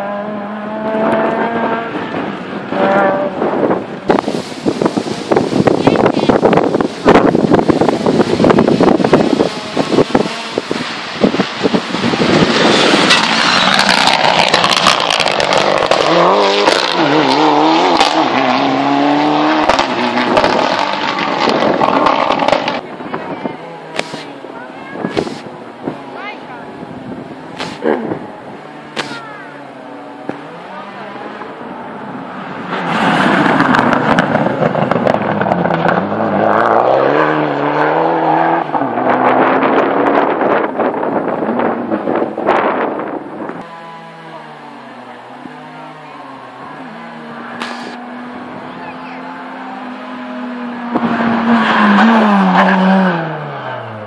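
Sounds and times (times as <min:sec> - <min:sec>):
rally car engine passing: 0:00.0 - 0:54.0
exhaust pops and cracks: 0:24.0 - 0:24.3, 0:27.6 - 0:28.2.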